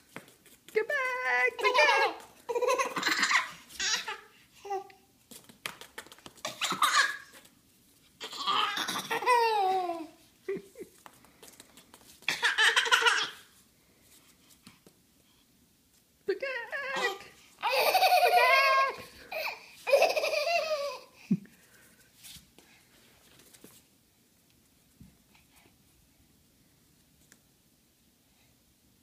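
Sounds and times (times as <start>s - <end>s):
baby laughing and squealing: 1.6s - 4.8s, 6.4s - 7.4s, 8.2s - 10.1s, 12.3s - 13.4s, 16.9s - 21.1s.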